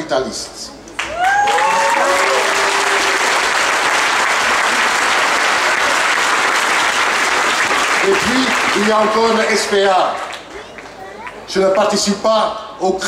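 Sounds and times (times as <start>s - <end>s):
voices cheering: 1.0s - 6.2s
crowd applauding: 1.0s - 11.5s.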